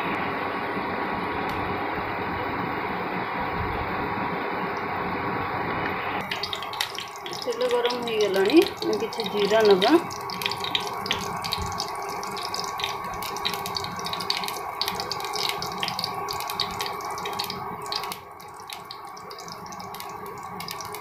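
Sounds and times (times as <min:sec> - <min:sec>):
cooktop hum: 0:00.0 - 0:21.0
seeds sizzling and popping in oil: 0:06.2 - 0:21.0.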